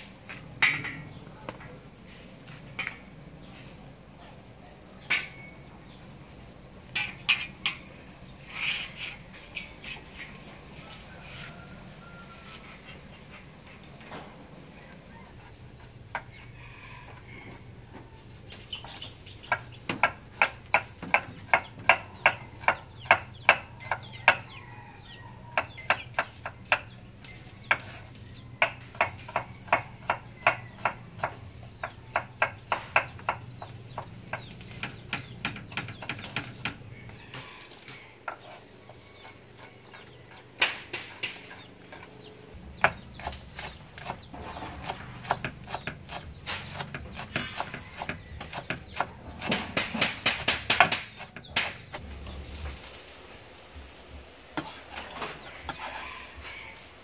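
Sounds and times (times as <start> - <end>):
knife chopping on wooden board: 42.8 - 52.0.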